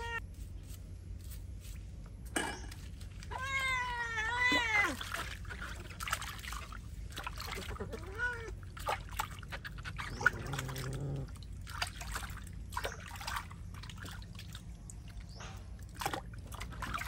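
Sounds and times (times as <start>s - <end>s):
water splashing in plastic basin: 4.4s - 17.0s.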